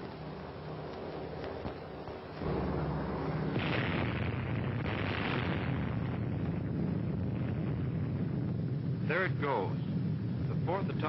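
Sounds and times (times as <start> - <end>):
explosion deep rumble: 2.4 - 11.0.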